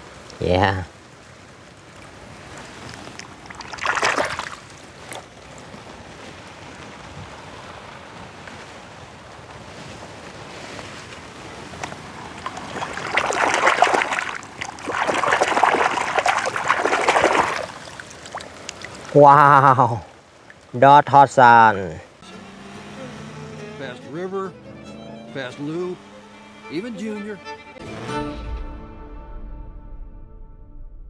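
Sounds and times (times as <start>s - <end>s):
hand splashing in shallow water: 2.8s - 5.3s, 11.8s - 19.2s.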